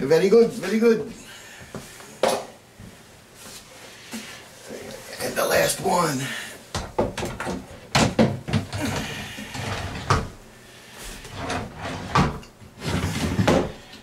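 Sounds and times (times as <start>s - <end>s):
drawer scraping on runners: 8.6s - 10.4s, 11.1s - 13.9s.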